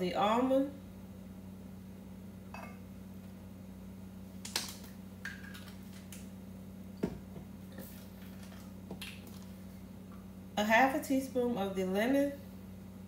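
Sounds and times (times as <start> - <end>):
steady low hum: 0.0 - 13.0
bottles clicking and knocking: 2.6 - 2.8.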